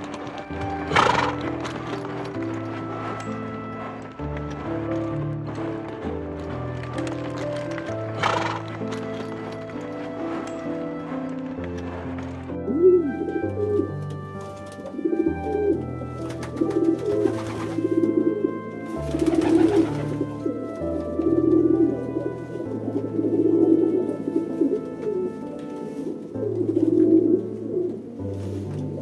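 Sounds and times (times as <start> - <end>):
background music: 0.0 - 29.0
pigeons cooing: 12.6 - 29.0.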